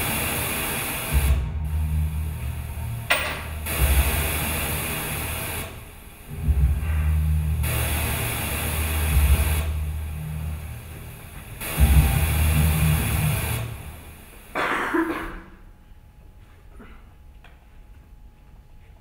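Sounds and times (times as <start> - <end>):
low rumbling drone: 0.0 - 14.7
hissing noise: 0.0 - 15.0.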